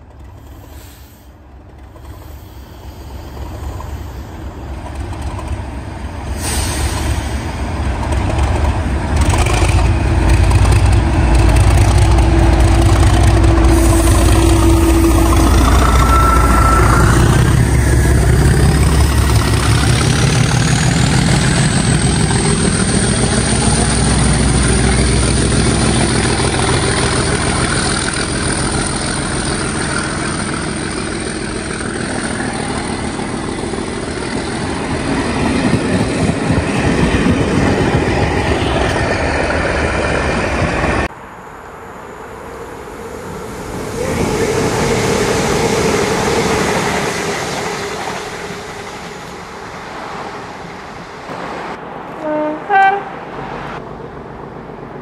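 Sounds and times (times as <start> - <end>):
diesel locomotive engine running: 0.0 - 41.1, 41.7 - 55.0
thin high whine: 12.1 - 19.6.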